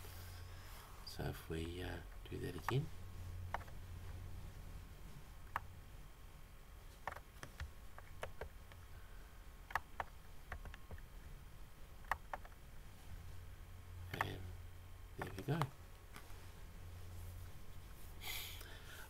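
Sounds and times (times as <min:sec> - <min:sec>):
low steady hum: 0:00.0 - 0:19.0
computer mouse clicking: 0:07.0 - 0:08.8, 0:09.7 - 0:11.0.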